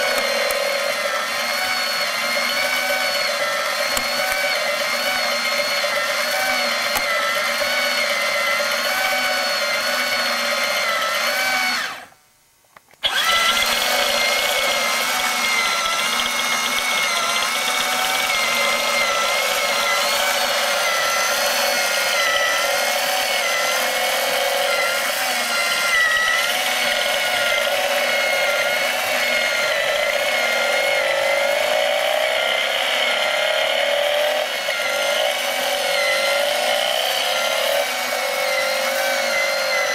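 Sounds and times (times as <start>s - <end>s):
small electric motor whirring: 0.0s - 12.2s, 13.0s - 39.9s.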